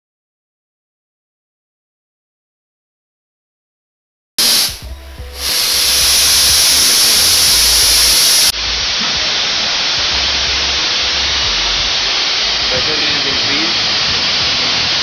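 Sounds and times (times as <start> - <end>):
welding torch flame hissing: 4.4 - 15.0.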